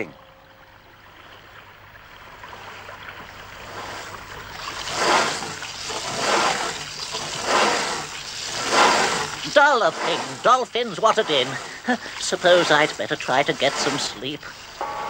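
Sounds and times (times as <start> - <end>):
cartoon drill grinding: 5.0 - 14.2.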